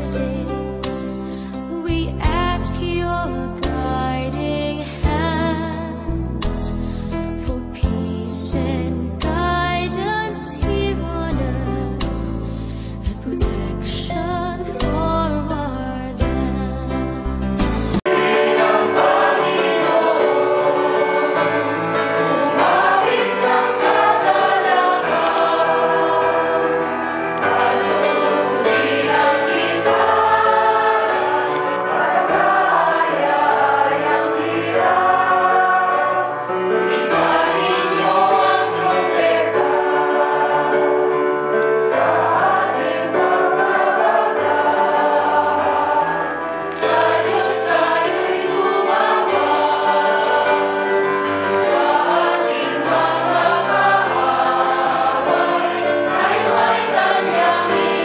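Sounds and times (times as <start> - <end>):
instrumental accompaniment: 17.6 - 58.0
choir singing a hymn: 18.1 - 58.0.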